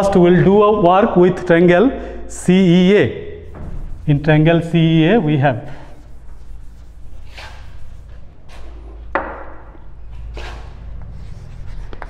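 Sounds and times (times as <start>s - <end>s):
chalk duster swishing on blackboard: 3.4s - 5.0s, 5.7s - 9.0s, 10.2s - 12.0s.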